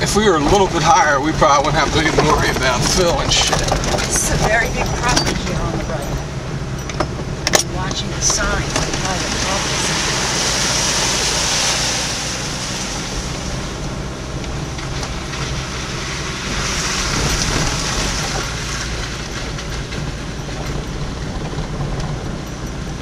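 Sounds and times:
car engine and tyre rumble: 0:00.0 - 0:23.0
car rattling over bumps: 0:00.0 - 0:23.0
water hissing against car: 0:08.4 - 0:14.3.

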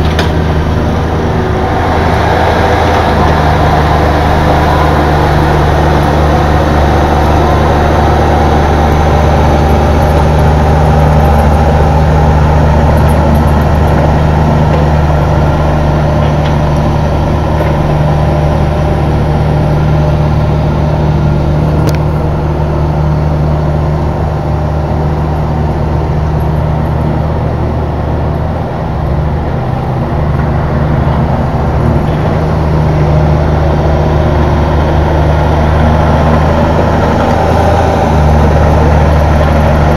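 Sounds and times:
excavator diesel engine running: 0:00.0 - 0:39.9.

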